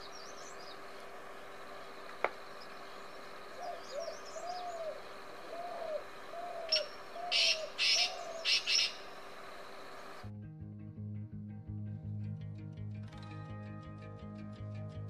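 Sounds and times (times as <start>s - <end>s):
small birds twittering: 0.0s - 10.2s
dove cooing: 3.4s - 10.2s
sharp high-pitched chirps: 6.7s - 9.1s.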